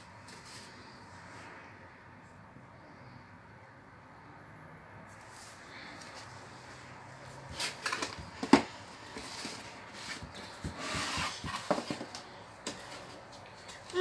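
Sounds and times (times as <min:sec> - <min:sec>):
cardboard rustling and scraping: 0:05.1 - 0:14.0.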